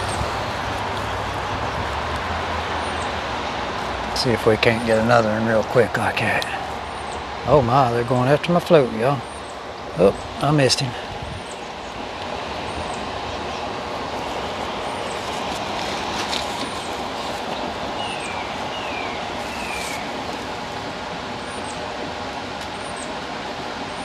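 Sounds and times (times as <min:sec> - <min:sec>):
creek water rushing: 0:00.0 - 0:24.0.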